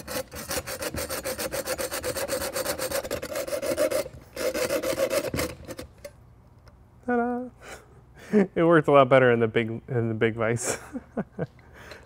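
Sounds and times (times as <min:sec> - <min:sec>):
hacksaw cutting steel rod: 0:00.0 - 0:06.1.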